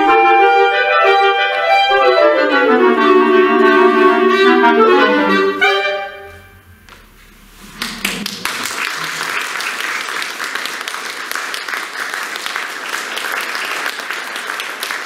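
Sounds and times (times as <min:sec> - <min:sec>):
clarinet music: 0:00.0 - 0:06.9
audience applauding: 0:07.7 - 0:15.0.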